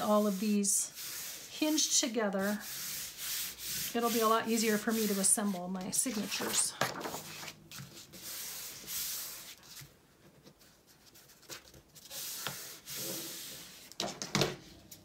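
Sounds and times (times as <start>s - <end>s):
hands rubbing paper: 0.0s - 1.8s, 2.4s - 14.0s
paper handling: 6.0s - 8.6s.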